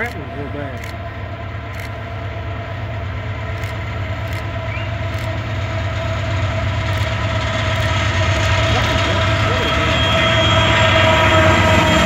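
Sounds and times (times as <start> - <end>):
diesel locomotive engines droning: 0.0 - 12.0.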